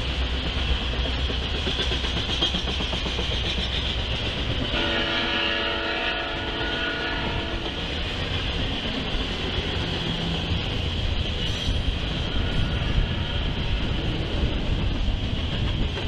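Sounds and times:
train wheels rumbling on rail: 0.0s - 16.0s
train horn: 4.7s - 7.8s.

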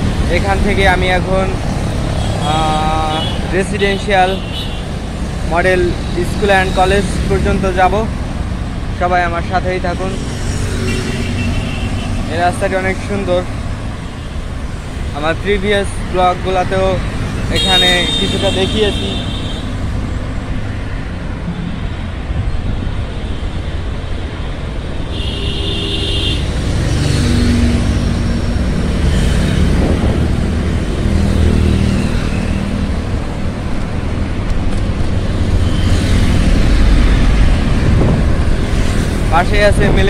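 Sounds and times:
steady low traffic rumble: 0.0s - 10.4s, 26.5s - 40.0s
cars and motorbikes passing: 0.0s - 40.0s.

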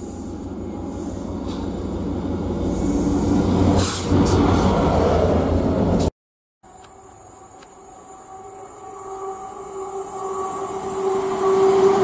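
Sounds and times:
train wheels on rails: 0.0s - 6.1s
diesel locomotive engine drone: 0.0s - 12.0s.

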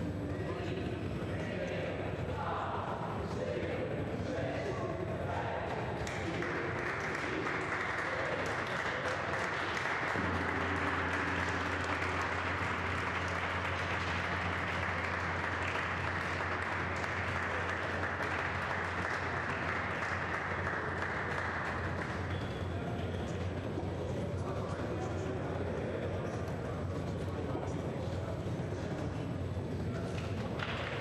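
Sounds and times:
steady low hum: 0.0s - 31.0s
small group clapping: 6.0s - 23.6s, 30.1s - 31.0s.

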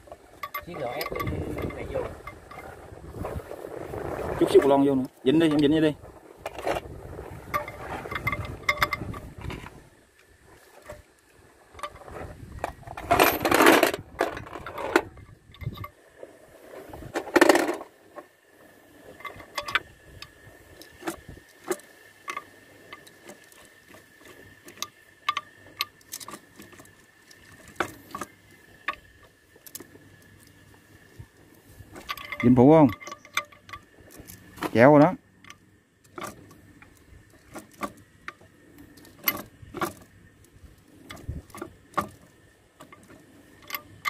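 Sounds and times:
metal gears clinking: 0.4s - 2.7s, 32.0s - 36.4s.

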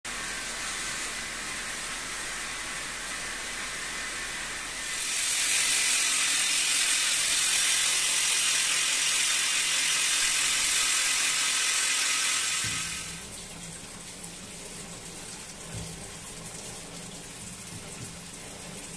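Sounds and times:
electric drill grinding into stone: 4.8s - 13.0s.

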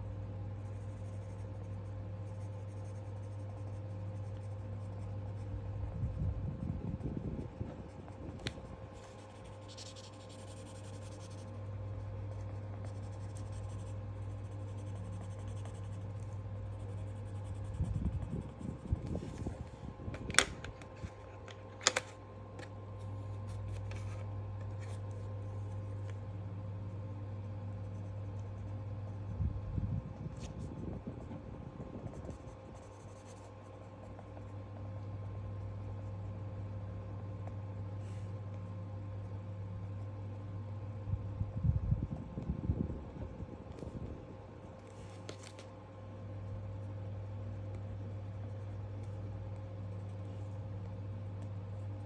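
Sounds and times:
steady low hum: 0.0s - 52.0s
pencil scratching on paper: 0.5s - 5.5s, 7.4s - 18.9s.

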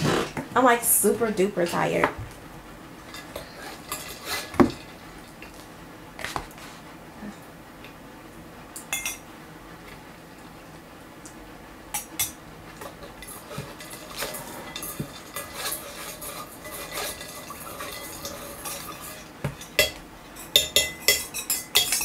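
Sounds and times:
spoon clinking against tea cup: 19.7s - 22.0s.

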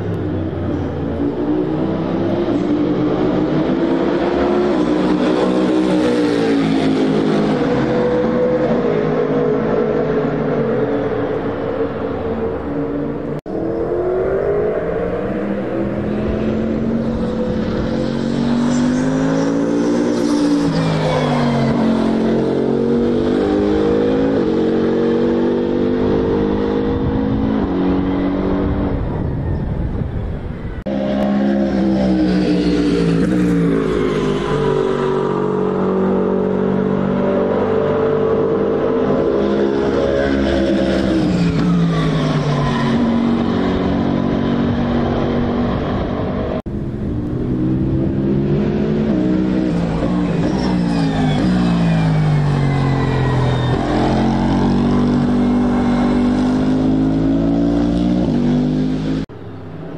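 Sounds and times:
race car engine revving: 30.9s - 59.5s.

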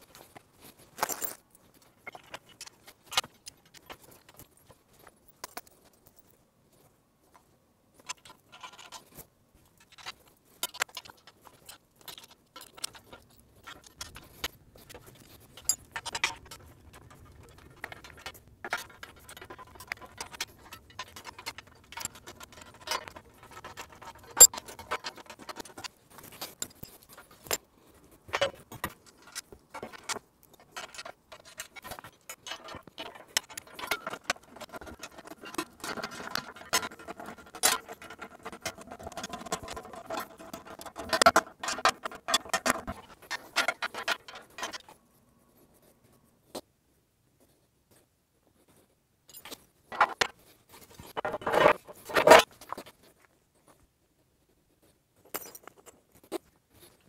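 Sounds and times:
metal parts clinking and clattering: 8.0s - 9.1s, 9.8s - 27.7s, 28.3s - 45.0s, 49.3s - 52.9s.

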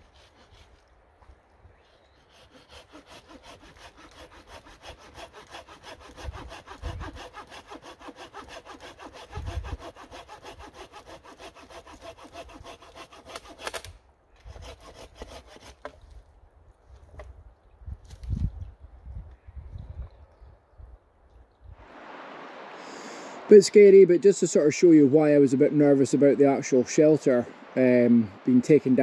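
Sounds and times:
hand saw cutting wood: 0.0s - 0.9s, 1.8s - 16.2s.

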